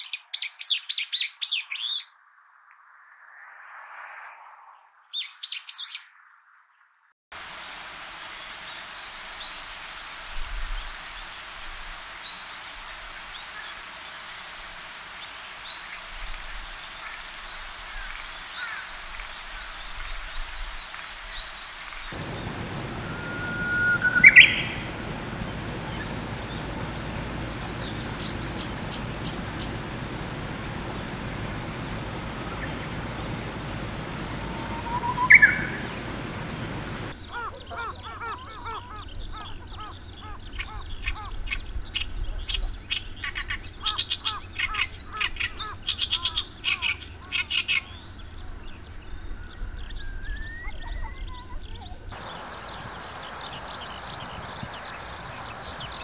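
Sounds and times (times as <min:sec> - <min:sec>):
warbler whistled song: 0:00.0 - 0:02.2, 0:05.0 - 0:06.2, 0:15.2 - 0:56.0
reed warbler harsh chattering: 0:12.2 - 0:42.2, 0:43.0 - 0:48.6, 0:52.1 - 0:56.0.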